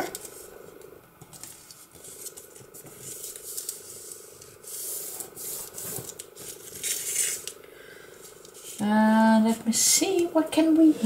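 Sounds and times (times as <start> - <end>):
paper rustling and scraping: 1.2 - 7.6, 8.2 - 8.9.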